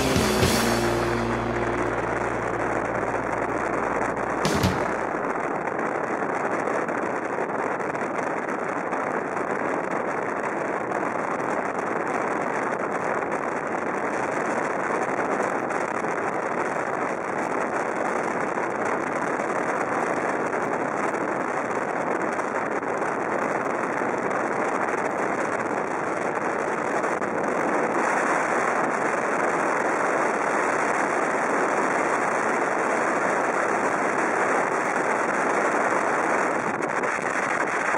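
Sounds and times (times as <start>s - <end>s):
car driving: 0.0s - 5.2s.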